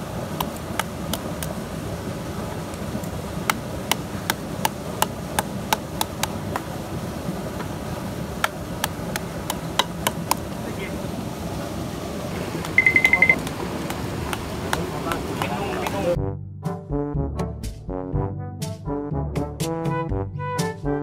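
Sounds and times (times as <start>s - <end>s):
knife chopping on wooden board: 3.5s - 6.7s, 8.4s - 10.4s, 13.4s - 16.0s.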